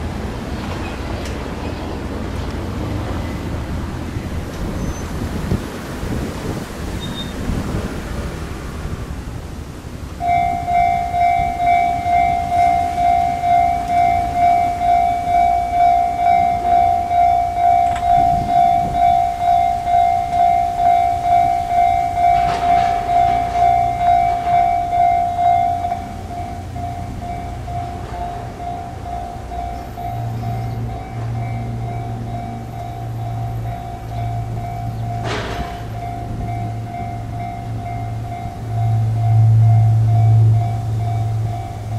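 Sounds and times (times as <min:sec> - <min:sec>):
road traffic rumble: 0:00.0 - 0:41.9
level crossing warning bell: 0:10.0 - 0:41.9.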